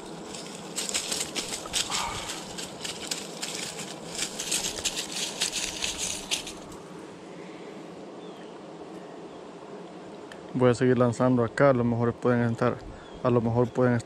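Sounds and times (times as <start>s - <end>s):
dry leaves crackling and rustling: 0.0s - 6.9s.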